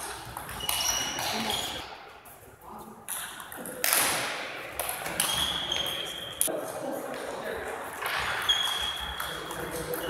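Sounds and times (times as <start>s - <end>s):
shoes squeaking on floor: 0.1s - 1.9s, 5.0s - 6.5s, 8.0s - 10.0s.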